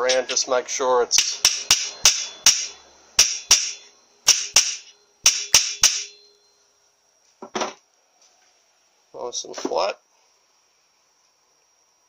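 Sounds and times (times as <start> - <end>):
hammer tapping on metal: 1.2 - 6.2.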